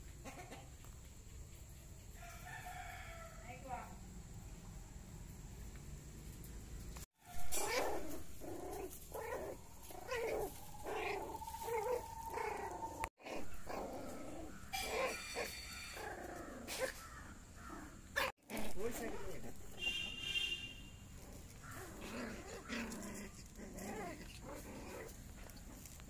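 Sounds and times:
puppies yipping and whining: 0:07.3 - 0:17.0.

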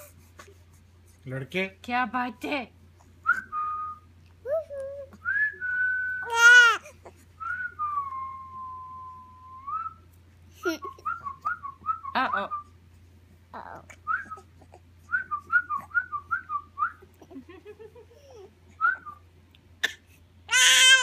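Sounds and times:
person whistling: 0:03.2 - 0:04.0, 0:05.2 - 0:06.3, 0:07.4 - 0:10.0.

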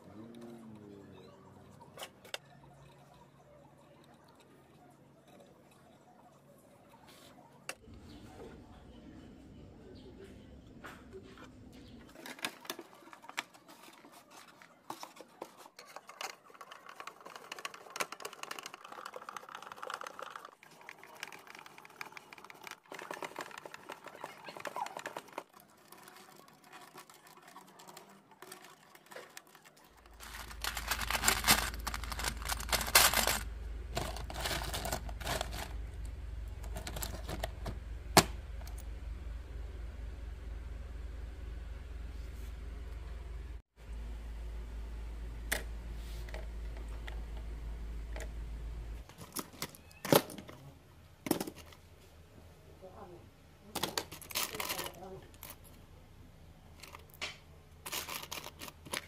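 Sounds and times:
small objects clicking and clattering: 0:12.1 - 0:35.8, 0:36.6 - 0:37.8, 0:51.2 - 0:51.8, 0:53.7 - 0:55.8, 0:56.8 - 0:59.0
steady low hum: 0:30.0 - 0:49.1.

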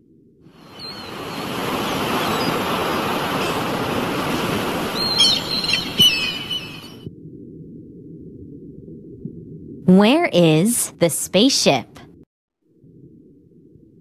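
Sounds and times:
waves and surf: 0:00.5 - 0:07.0
birds chirping: 0:00.6 - 0:07.0.

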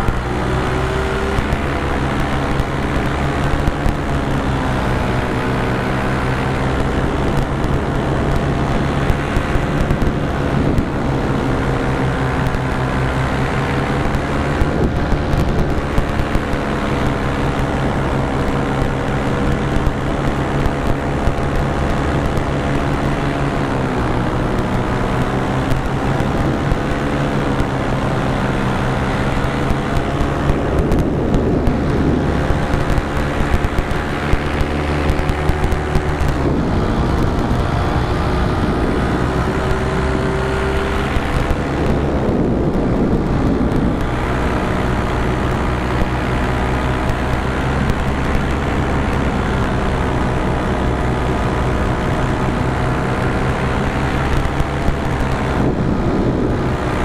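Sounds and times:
paramotor engine and propeller: 0:00.0 - 0:57.0.

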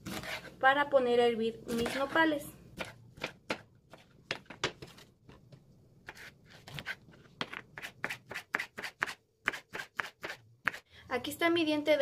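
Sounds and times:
knife chopping on wooden board: 0:02.8 - 0:04.9, 0:06.0 - 0:10.8.

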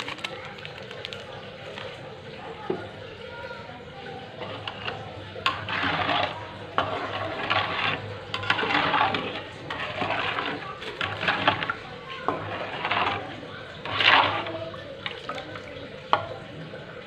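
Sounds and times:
ladle scraping metal pan: 0:04.3 - 0:16.4.

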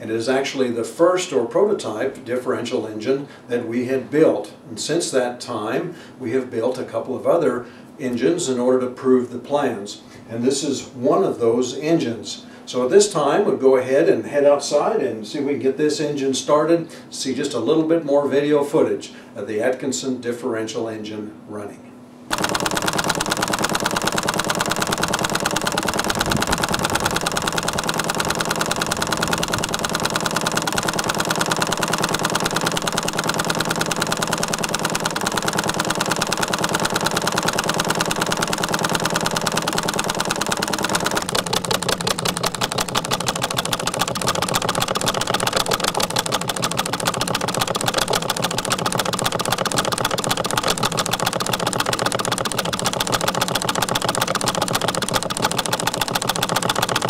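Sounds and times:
small model engine running: 0:22.3 - 0:57.0.

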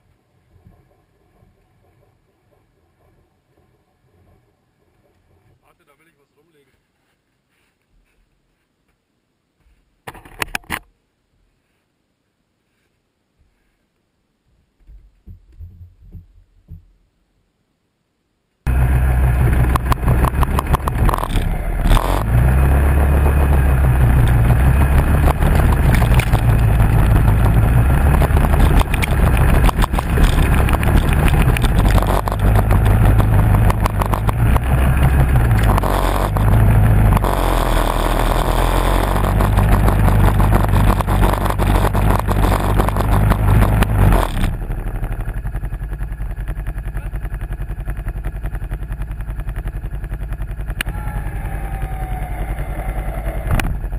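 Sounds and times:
engine revving and idling: 0:18.7 - 0:53.9.

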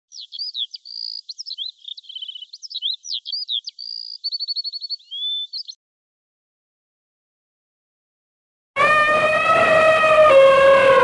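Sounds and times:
songbird singing: 0:00.0 - 0:05.8.

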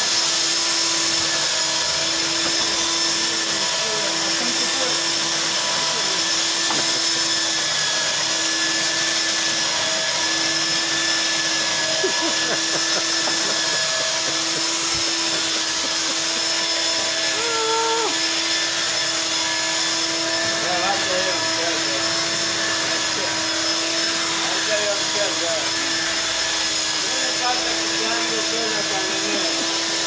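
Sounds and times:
belt sander on wood: 0:00.0 - 0:30.0.

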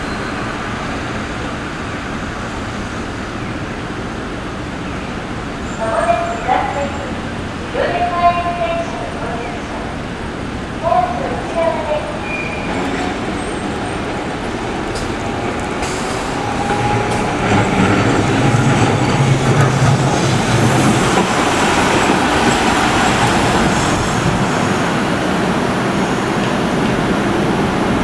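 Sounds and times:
tram wheels and motors rumbling: 0:00.0 - 0:28.0.

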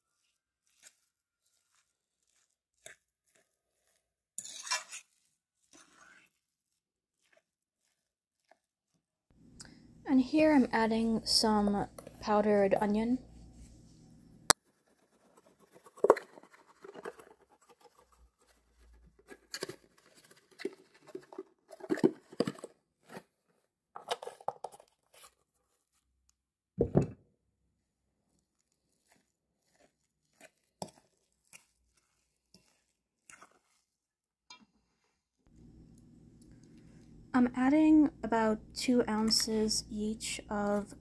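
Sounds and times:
kitchen utensil clicks and scrapes: 0:02.8 - 0:05.2.

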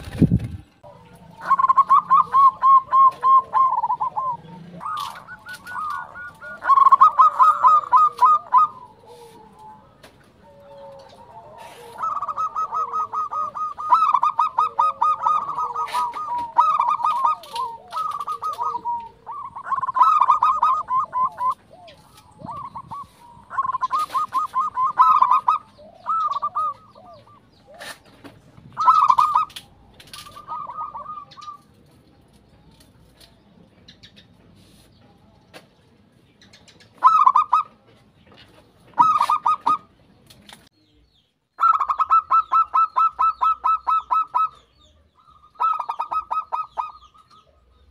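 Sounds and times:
dove cooing: 0:00.0 - 0:31.9, 0:36.8 - 0:37.8, 0:38.9 - 0:39.9, 0:41.6 - 0:47.9.

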